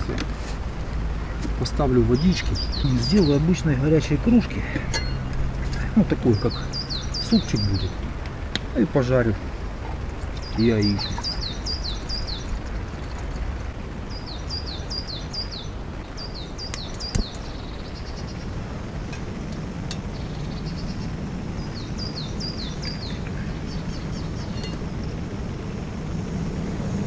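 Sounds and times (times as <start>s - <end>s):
low steady rushing noise: 0.0s - 27.0s
songbird singing: 0.9s - 26.0s
sharp clicks: 16.7s - 17.5s.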